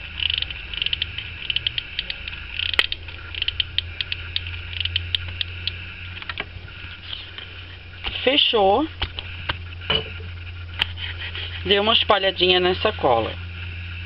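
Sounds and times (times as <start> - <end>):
steady low hum: 0.0 - 14.0
glue gun clicking and creaking: 0.2 - 5.5.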